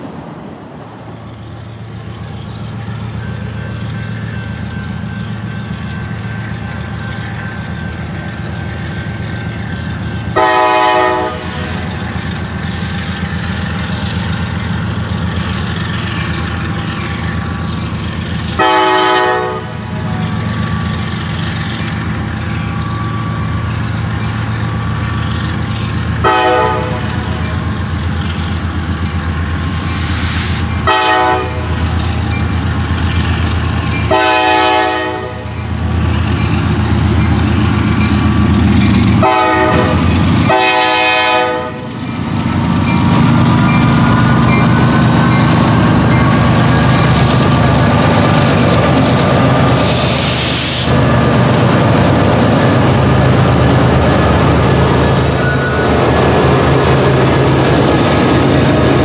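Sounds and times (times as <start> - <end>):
locomotive air horn blasts: 10.4 - 11.9, 18.6 - 19.8, 26.2 - 27.1, 30.5 - 31.8, 34.1 - 35.5, 39.2 - 41.9.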